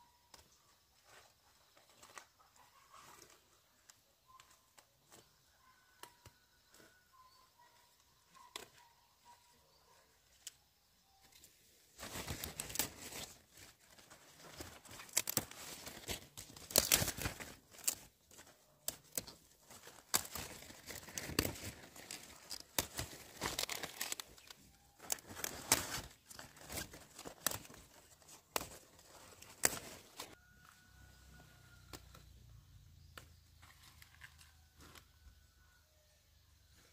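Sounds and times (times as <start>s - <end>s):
leaves crackling and tearing: 12.0s - 30.4s, 33.0s - 35.0s.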